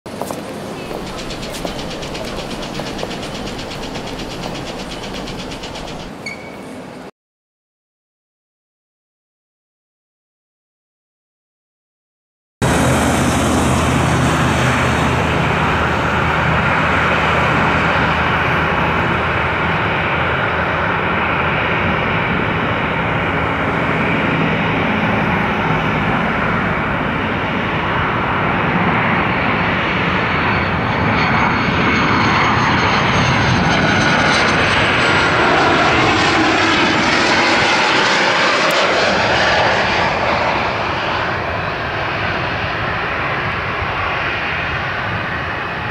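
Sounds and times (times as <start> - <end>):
jet rush and hiss: 0.2 - 6.2
high whine gliding down: 0.7 - 6.2.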